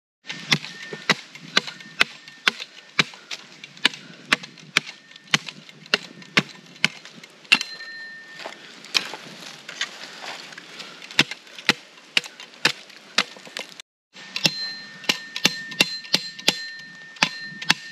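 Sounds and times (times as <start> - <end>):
hatchet pounding wooden stake: 0.3 - 7.8, 11.1 - 13.8, 14.4 - 17.9.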